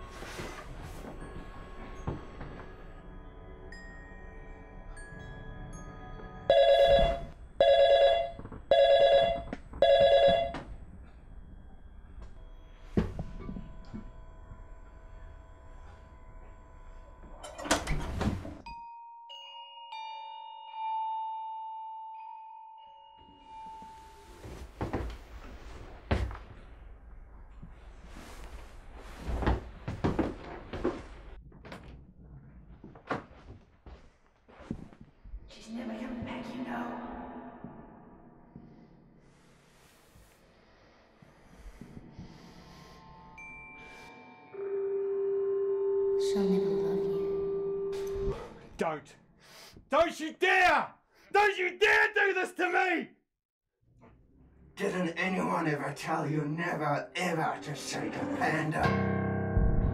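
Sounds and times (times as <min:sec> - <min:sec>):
telephone electronic rings: 0:06.5 - 0:10.6.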